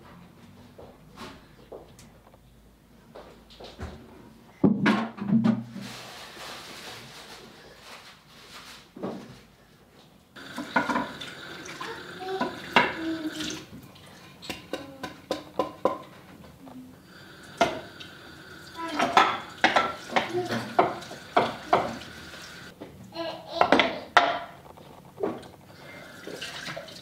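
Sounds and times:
dishes clinking and knocking: 4.6s - 5.7s, 10.4s - 13.5s, 14.4s - 16.4s, 17.2s - 18.1s, 18.8s - 22.2s, 23.6s - 25.5s
tap running into sink: 10.4s - 13.6s, 18.9s - 22.2s.

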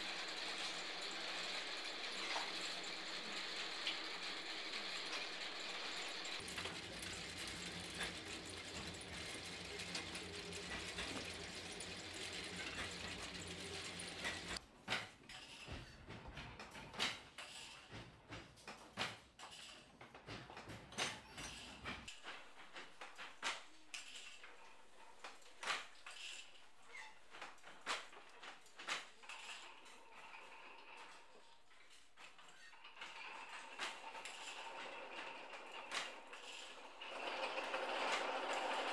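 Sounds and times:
winding machine whirring: 0.0s - 14.6s.

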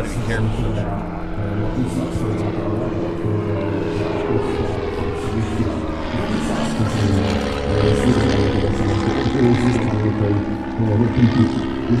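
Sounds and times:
light aircraft flying past: 0.0s - 12.0s.

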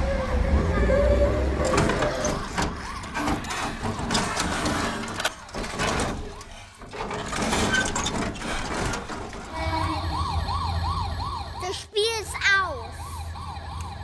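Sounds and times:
toy truck crashing and tumbling: 1.6s - 9.6s
electronic siren wailing: 9.5s - 11.9s, 12.7s - 14.0s.

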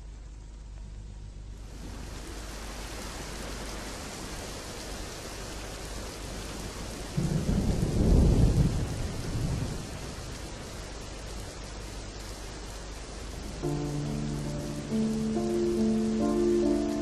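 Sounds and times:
heavy rain falling: 1.6s - 17.0s
low roll of thunder: 7.2s - 10.4s.

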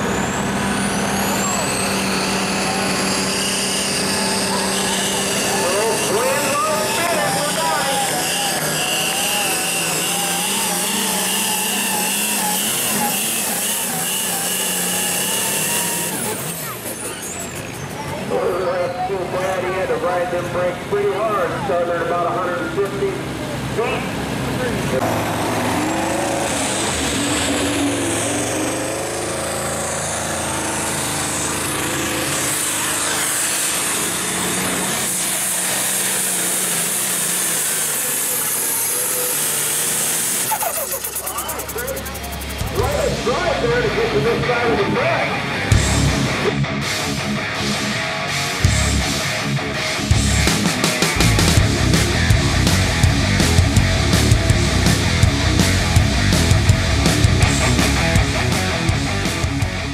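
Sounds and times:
diesel tractor engine under load: 0.0s - 59.9s
high turbo whine: 0.0s - 59.9s
steady high whine: 39.9s - 59.9s.

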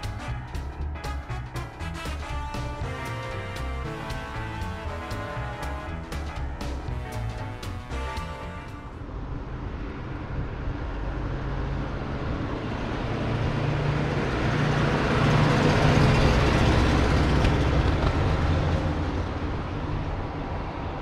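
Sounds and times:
truck engine driving past: 0.0s - 21.0s.

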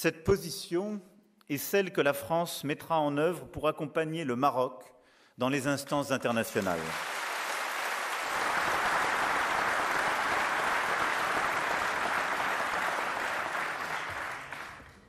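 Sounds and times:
crowd applauding: 6.6s - 15.0s.

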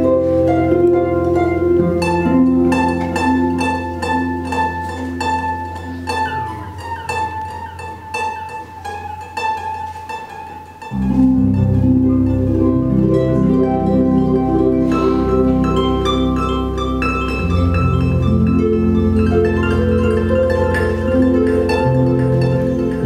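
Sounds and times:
harp plucked notes: 0.0s - 23.0s
sustained low harp notes: 0.0s - 23.0s.

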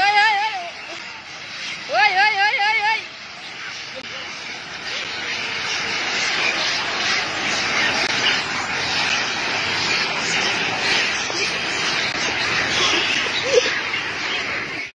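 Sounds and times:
macaques screeching: 0.0s - 14.9s
loud monkey squeal: 3.4s - 14.9s.

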